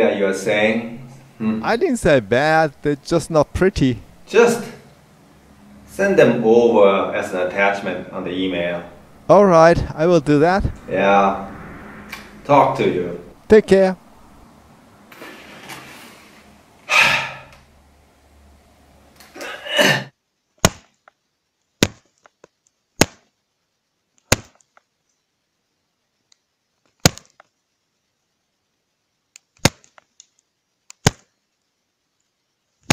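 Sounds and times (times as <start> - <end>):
man's wordless angry outbursts: 1.6 - 4.8.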